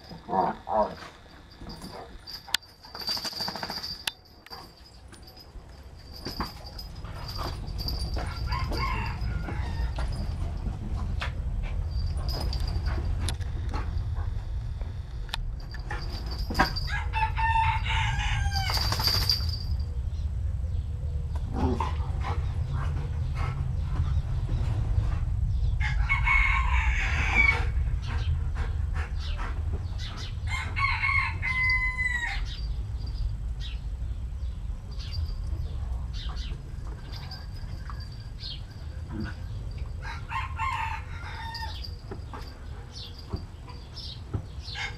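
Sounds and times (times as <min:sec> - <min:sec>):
steady low rumble: 0:03.8 - 0:40.6
rooster crowing: 0:08.3 - 0:10.2, 0:16.9 - 0:18.9, 0:25.8 - 0:27.7, 0:30.5 - 0:32.6, 0:40.0 - 0:41.8.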